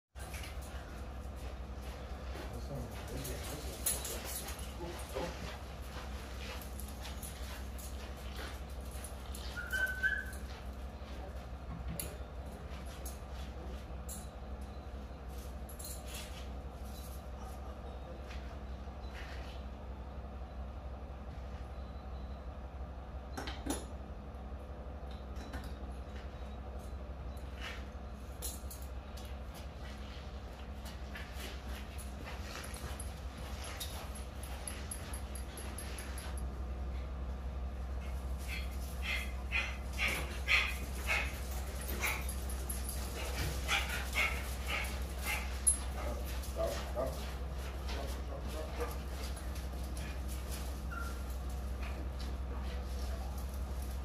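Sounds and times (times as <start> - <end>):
dogs yipping and barking: 9.3 - 10.5, 38.0 - 47.2, 48.8 - 51.5.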